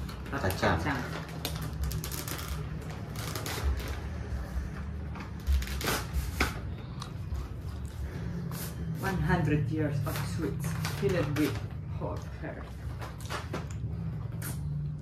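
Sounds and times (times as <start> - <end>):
paper rustling and crinkling: 0.0 - 6.7.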